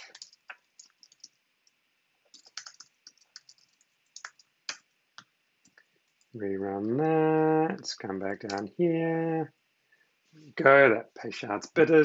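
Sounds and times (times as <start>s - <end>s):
keyboard typing: 0.0s - 1.4s, 2.3s - 4.8s.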